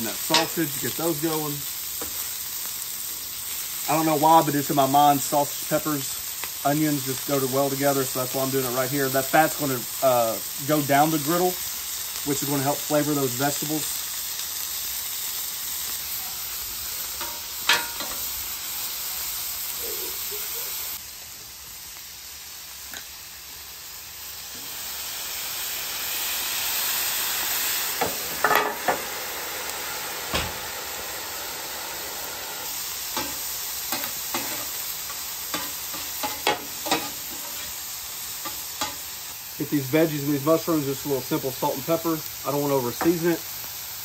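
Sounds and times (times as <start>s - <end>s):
food sizzling on a griddle: 0.0s - 44.0s
metal spatula scraping griddle: 33.2s - 37.8s.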